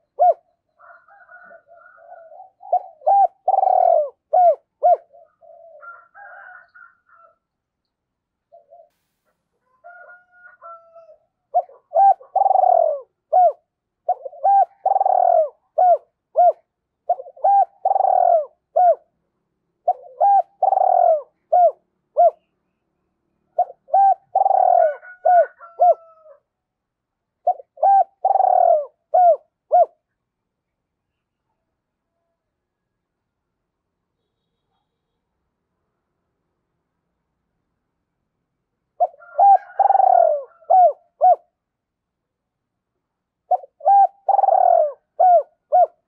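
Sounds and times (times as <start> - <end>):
dove cooing: 0.0 - 7.4, 8.5 - 8.9, 10.1 - 19.1, 19.8 - 22.5, 23.6 - 26.4, 27.4 - 30.0, 39.0 - 41.6, 43.5 - 46.0.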